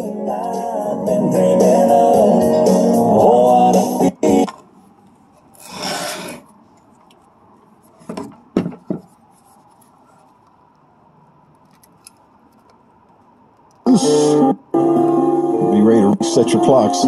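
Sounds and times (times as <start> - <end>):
wire rubbing rustle: 5.1 - 8.1.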